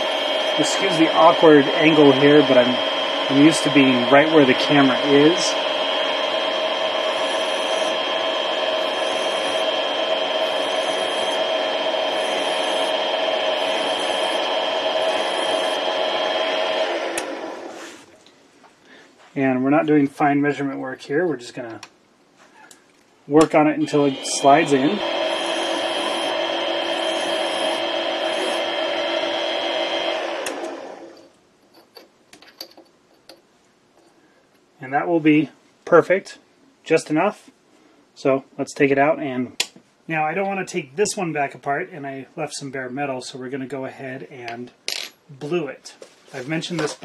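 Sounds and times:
mini lathe motor whine: 0:00.0 - 0:17.8, 0:23.7 - 0:31.3
hand file on spinning metal: 0:06.4 - 0:11.4, 0:12.1 - 0:15.8.

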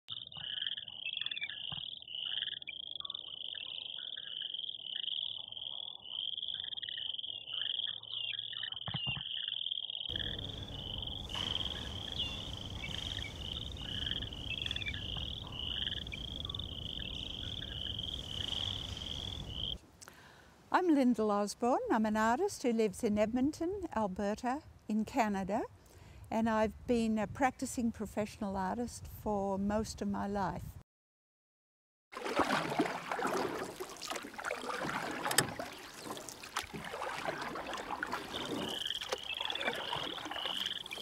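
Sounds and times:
rapid pulsing animal call: 0:10.1 - 0:19.8, 0:36.9 - 0:41.0
softer lower animal calls: 0:10.1 - 0:19.8
background hiss: 0:10.1 - 0:21.1.

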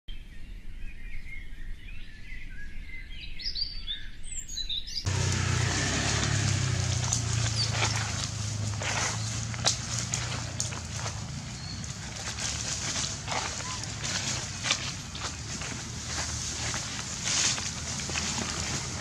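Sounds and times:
small birds chirping: 0:00.3 - 0:19.0.

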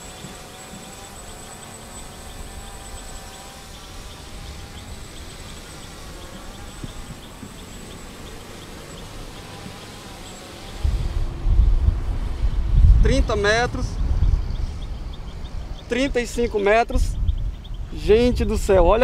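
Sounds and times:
drone propellers buzzing: 0:00.0 - 0:19.0
low rumble: 0:10.8 - 0:19.0.

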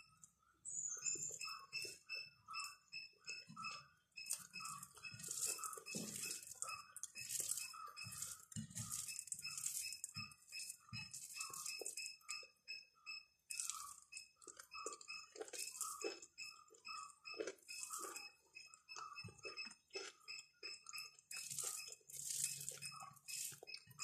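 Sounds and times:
wet squishing of food mixed by hand: 0:04.3 - 0:12.6, 0:13.5 - 0:24.0.

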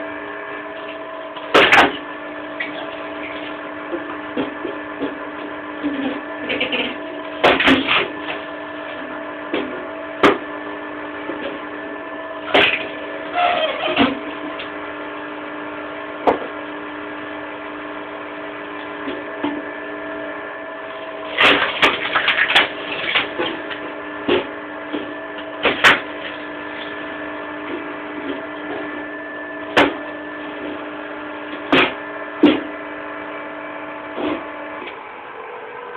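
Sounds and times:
wood cracking as it splits: 0:21.3 - 0:27.0.

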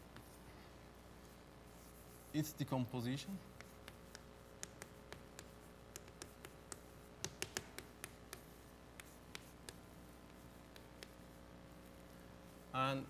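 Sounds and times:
chalk tapping on blackboard: 0:00.0 - 0:00.4, 0:03.5 - 0:12.6.

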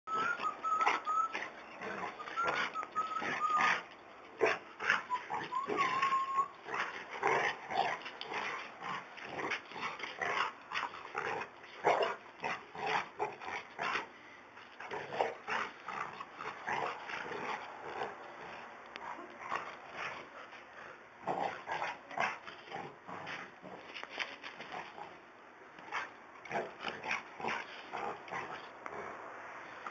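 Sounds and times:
dog whining: 0:00.1 - 0:03.9, 0:04.8 - 0:06.6
dogs play-fighting: 0:00.1 - 0:29.9.

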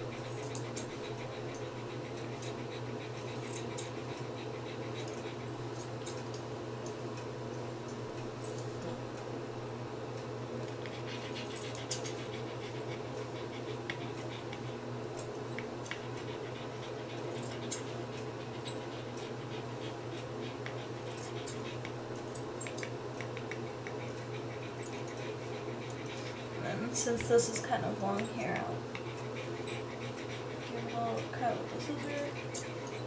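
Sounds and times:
steady low hum: 0:00.0 - 0:33.0
scissors snipping hair: 0:25.9 - 0:29.8.

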